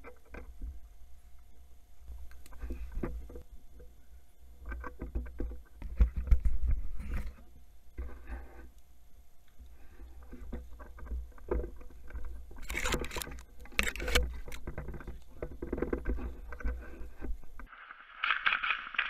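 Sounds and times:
sharp bright noise: 17.7 - 19.0.

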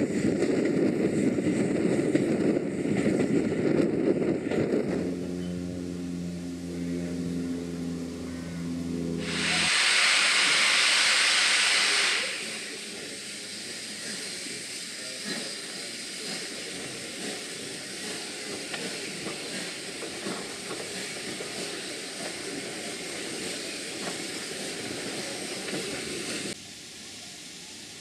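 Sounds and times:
train running: 0.0 - 28.0
steam hissing: 9.2 - 28.0.

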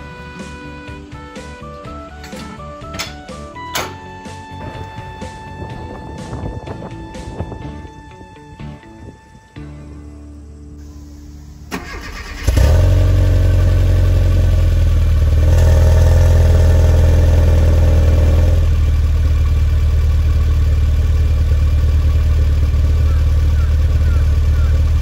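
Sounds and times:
car engine starting and idling: 0.0 - 7.6, 10.4 - 25.0.

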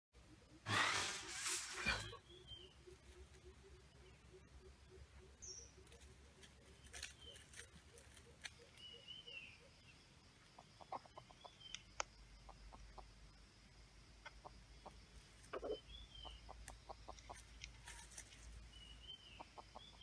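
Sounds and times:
high falling bird calls: 0.3 - 10.0
clicks and rustles in leaf litter: 0.7 - 2.2, 5.9 - 8.6.

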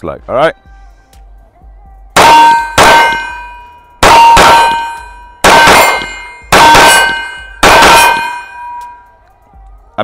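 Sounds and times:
steel target ringing: 2.2 - 9.1
pistol shots: 4.0 - 8.6.

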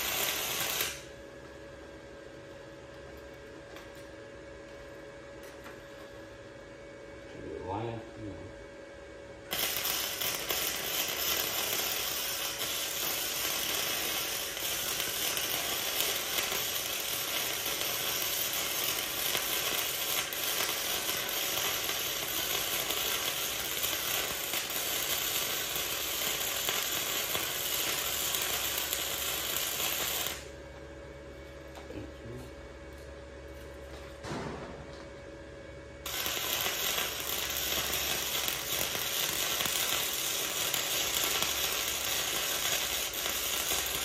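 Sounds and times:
welder arc crackling: 0.0 - 1.2, 9.4 - 30.6, 36.0 - 44.0.

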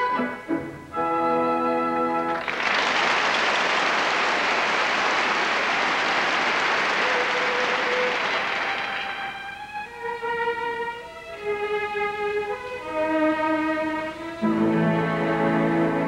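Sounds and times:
orchestra violins: 0.0 - 2.4, 6.8 - 16.0
audience applauding: 2.3 - 9.5.

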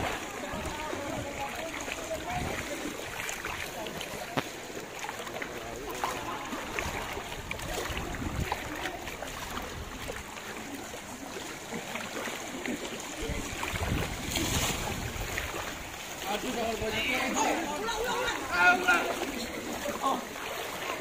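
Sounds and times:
wind rumbling on microphone: 0.0 - 3.8, 6.7 - 10.4, 13.2 - 16.0
water sloshing around wading legs: 0.0 - 21.0.

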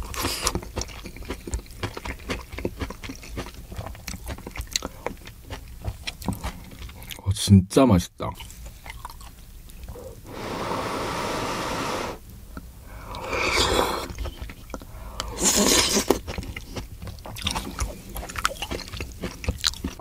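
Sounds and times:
chewing with wet mouth clicks: 0.0 - 7.2, 8.3 - 10.0, 14.0 - 20.0
soup slurping: 9.9 - 12.2.

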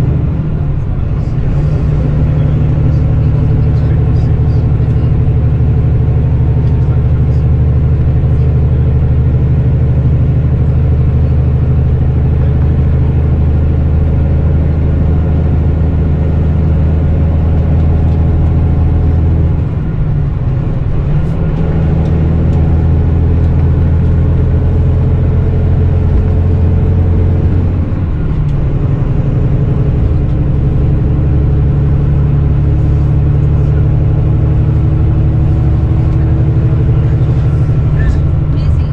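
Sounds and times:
diesel coach engine running: 0.0 - 38.9
road and tyre noise: 0.0 - 38.9.

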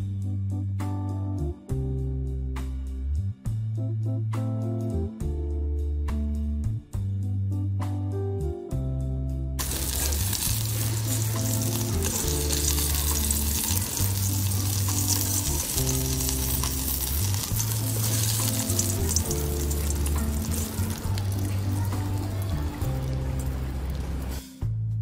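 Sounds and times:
music with deep bass notes: 0.0 - 25.0
spatula scraping a pan: 9.6 - 21.0
hot oil sizzling: 9.6 - 24.4.

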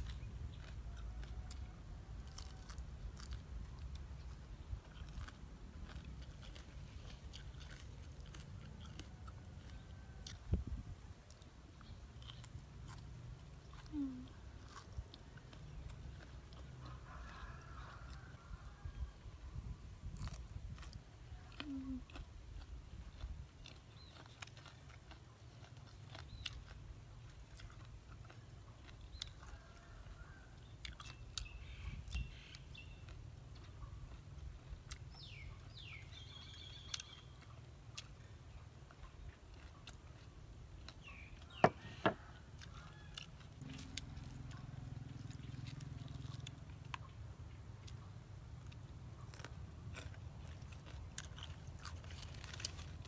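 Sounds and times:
person chewing: 0.0 - 53.0
bird chirps: 30.6 - 33.2, 35.1 - 37.6.

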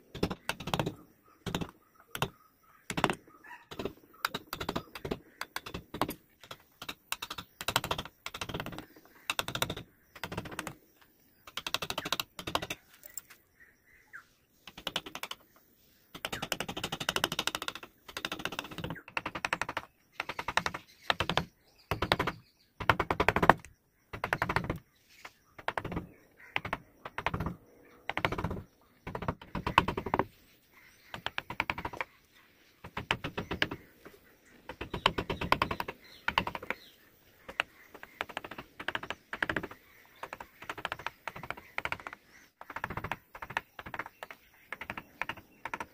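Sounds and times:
chisel paring wood: 0.1 - 10.8, 16.2 - 24.8, 25.6 - 30.3, 32.8 - 34.0, 34.7 - 45.9.

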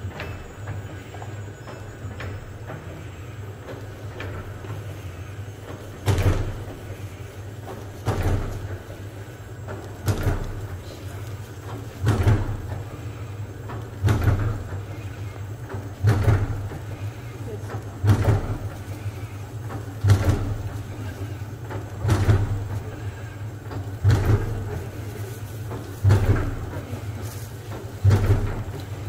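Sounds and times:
machine motor hum: 0.0 - 29.0
loud mechanical clunk: 5.7 - 7.2, 8.0 - 17.1, 17.7 - 25.1, 25.7 - 29.0.

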